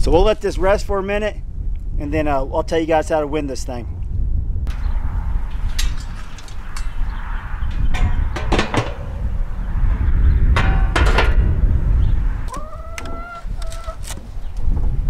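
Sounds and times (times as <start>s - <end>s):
wind rumble on microphone: 0.0s - 15.0s
metal drum and lid clanking: 4.7s - 12.1s.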